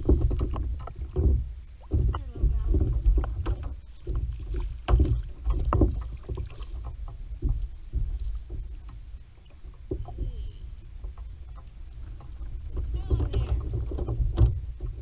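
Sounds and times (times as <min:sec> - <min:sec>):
knocks and clicks on plastic kayak: 0:00.0 - 0:15.0
wind rumble on microphone: 0:00.0 - 0:15.0.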